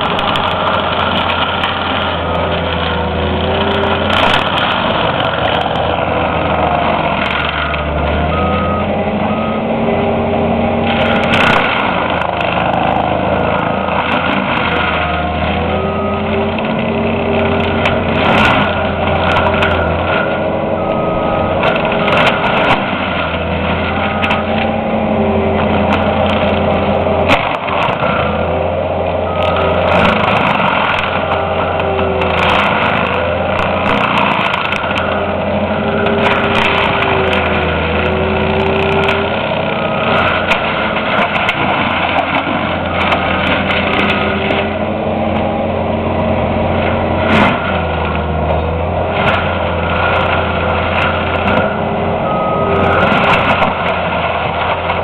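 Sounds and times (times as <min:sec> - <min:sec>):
wood splintering cracks: 0:00.0 - 0:08.7, 0:10.8 - 0:55.0
diesel engine running hard: 0:00.0 - 0:55.0
backup alarm beeps: 0:20.8 - 0:21.6.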